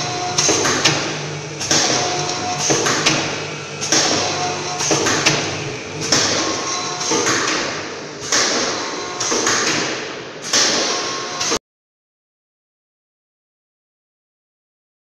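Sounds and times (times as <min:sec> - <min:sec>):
packing machine clacking: 0:00.0 - 0:11.5
packing machine hissing: 0:00.0 - 0:11.6.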